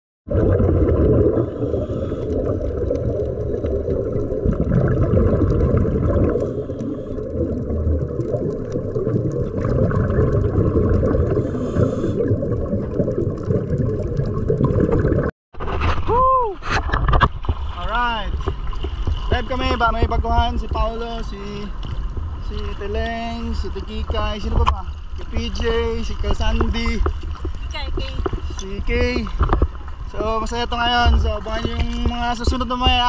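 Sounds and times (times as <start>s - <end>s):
scuba exhaust bubbles hissing: 0.3s - 15.3s
muffled underwater rumble: 0.3s - 33.0s.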